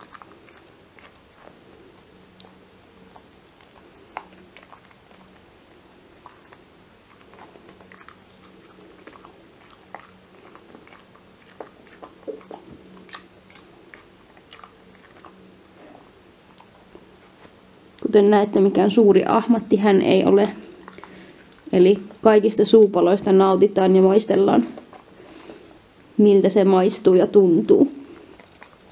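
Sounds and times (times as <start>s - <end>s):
dog gnawing chew stick: 0.0s - 17.6s, 20.2s - 22.5s, 24.6s - 26.2s, 27.8s - 28.9s.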